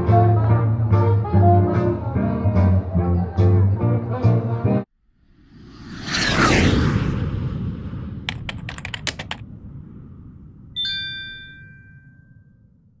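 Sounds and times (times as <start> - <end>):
faint low rumble: 5.0 - 13.0
quick clicks: 8.3 - 9.4
notification bell ding: 10.8 - 12.5.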